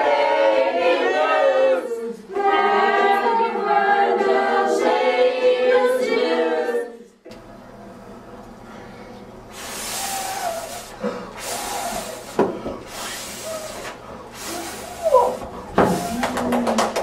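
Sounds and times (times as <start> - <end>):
group of people hissing: 9.5 - 16.4.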